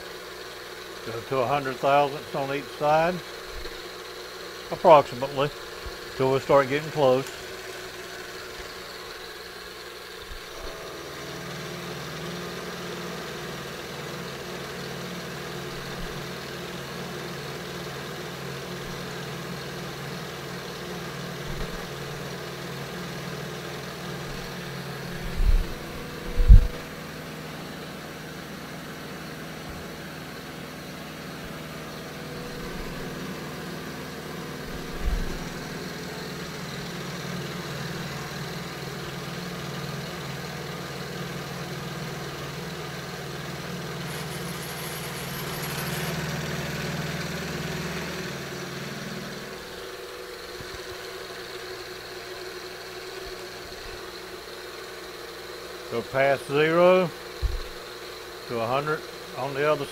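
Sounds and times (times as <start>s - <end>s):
dull low thumps: 25.2s - 26.9s.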